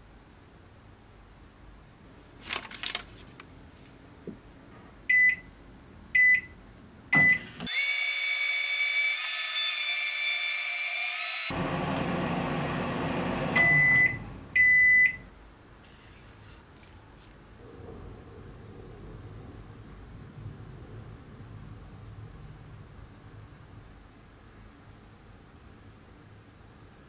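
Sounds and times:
long end-of-cycle beeps: 0:06.2 - 0:06.5, 0:13.6 - 0:15.3
microwave oven humming: 0:11.5 - 0:15.2
short keypad beeps: 0:13.6 - 0:15.2.

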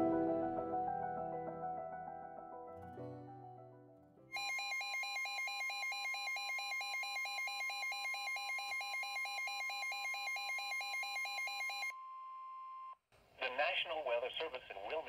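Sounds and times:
soft ambient piano music: 0:00.0 - 0:04.3.

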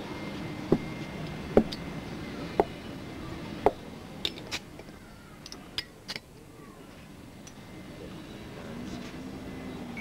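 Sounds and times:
low background murmur: 0:00.0 - 0:10.0
sharp knocks: 0:02.6 - 0:02.8.

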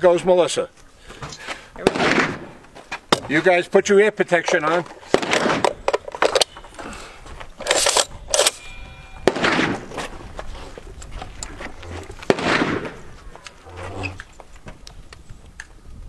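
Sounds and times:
rustling and shuffling: 0:02.4 - 0:08.5, 0:09.1 - 0:15.8
rifle clicks and clacks: 0:07.6 - 0:08.7.

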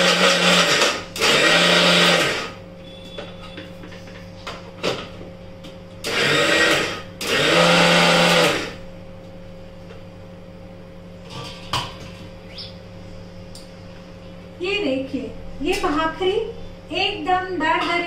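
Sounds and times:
electric mixer grinder grinding: 0:00.0 - 0:02.6, 0:06.0 - 0:08.8.

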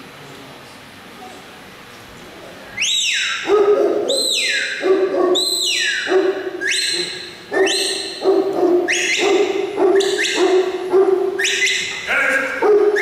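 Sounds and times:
dog barking loudly: 0:03.3 - 0:13.0.

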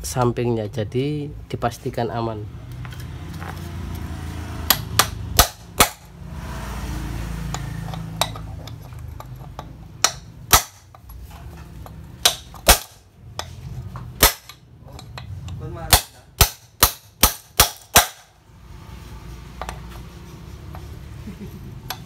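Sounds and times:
hammer striking metal socket: 0:07.5 - 0:11.2, 0:11.8 - 0:18.2.

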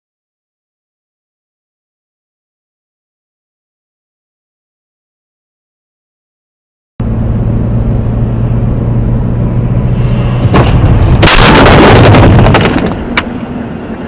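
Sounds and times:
car driving rumble: 0:07.0 - 0:14.0
loud car crash: 0:10.0 - 0:13.4.

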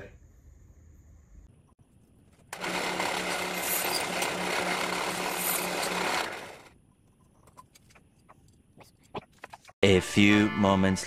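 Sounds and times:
power tool grinding: 0:02.6 - 0:06.7.

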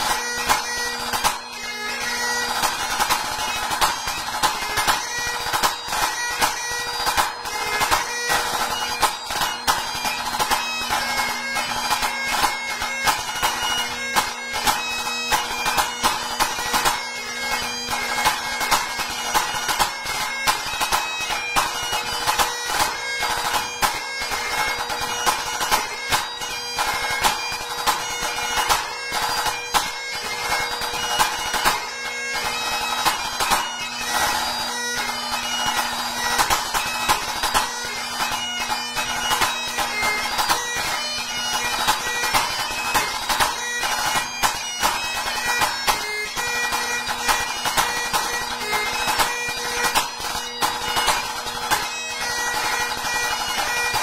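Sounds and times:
bagpipe playing a tune: 0:00.0 - 0:54.0.

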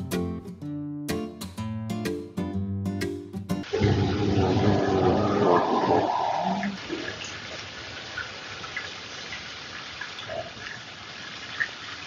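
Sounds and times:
background music: 0:00.0 - 0:03.7.

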